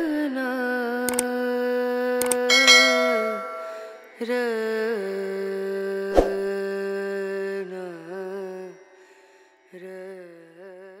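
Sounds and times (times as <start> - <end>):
music: 0.0 - 11.0
sharp click: 1.1 - 1.3, 2.2 - 2.5.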